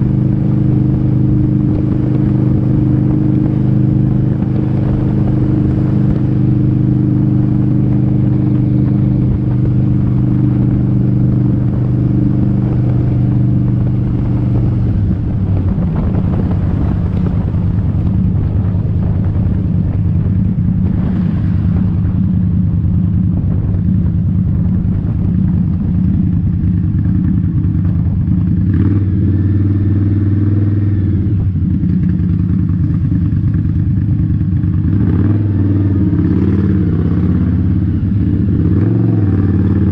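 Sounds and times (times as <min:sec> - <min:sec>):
motorcycle engine running: 0:00.0 - 0:39.9
rough rushing noise: 0:00.0 - 0:39.9.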